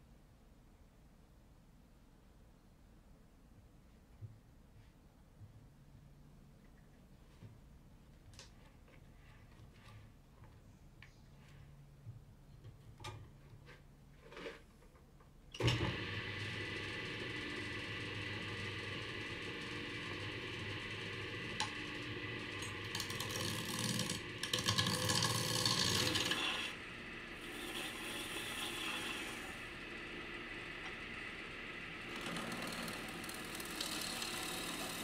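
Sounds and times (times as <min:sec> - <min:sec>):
wood lathe humming: 0:15.8 - 0:35.0
gouge cutting spinning wood: 0:16.1 - 0:35.0.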